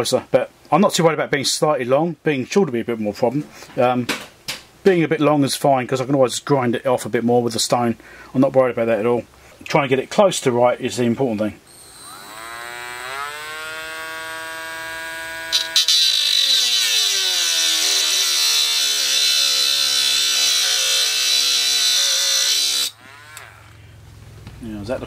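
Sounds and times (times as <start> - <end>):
rotary tool whining: 11.7 - 23.8
disc grinding metal: 12.0 - 23.8.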